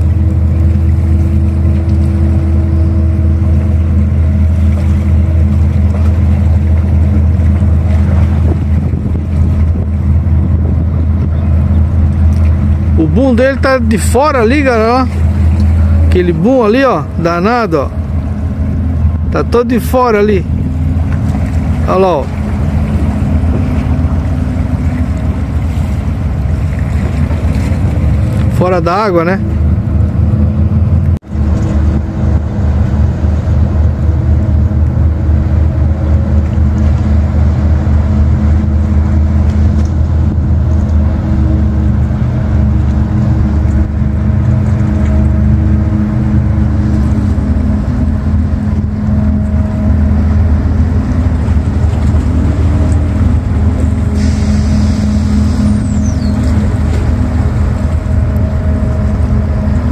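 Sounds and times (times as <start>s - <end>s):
ship diesel engines humming: 0.0s - 59.9s.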